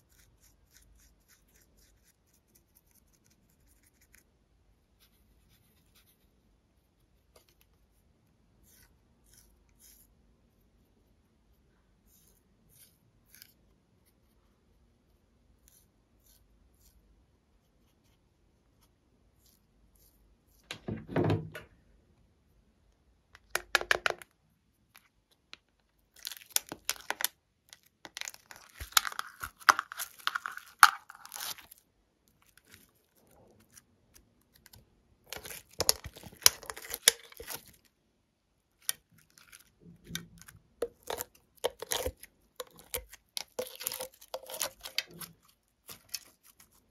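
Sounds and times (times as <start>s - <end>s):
crackling tearing of filling material: 26.2s - 37.9s, 38.8s - 46.9s.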